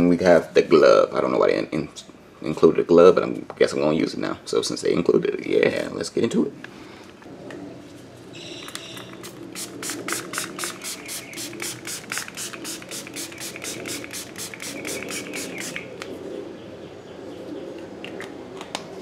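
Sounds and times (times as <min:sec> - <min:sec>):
spray bottle hissing sprays: 0:08.8 - 0:15.9.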